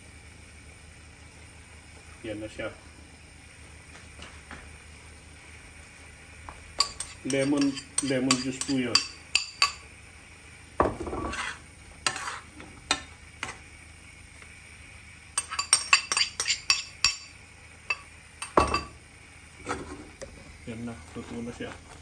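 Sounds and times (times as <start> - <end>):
metal spoon clinking on bowl: 6.8 - 9.8, 15.4 - 17.3, 17.9 - 18.9.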